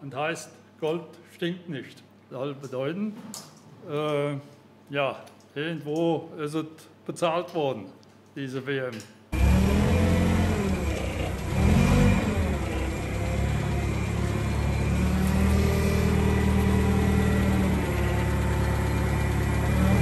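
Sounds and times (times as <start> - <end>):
forklift engine revving: 9.4 - 20.0.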